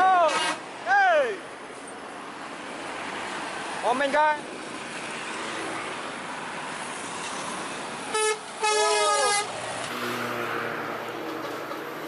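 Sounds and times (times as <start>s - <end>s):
passing traffic: 0.0s - 12.0s
musical air horn: 0.2s - 0.6s, 8.1s - 10.6s.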